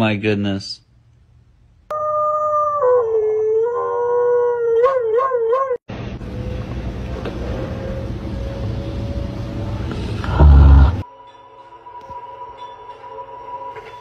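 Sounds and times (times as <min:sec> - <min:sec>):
dog howling: 0:01.9 - 0:05.8.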